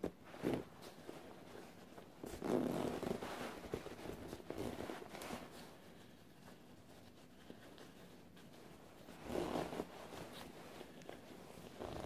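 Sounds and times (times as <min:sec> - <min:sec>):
padded jacket rustling: 0:09.1 - 0:12.0.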